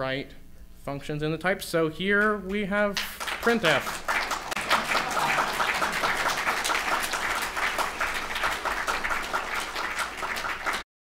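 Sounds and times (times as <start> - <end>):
audience applauding: 3.0 - 10.9.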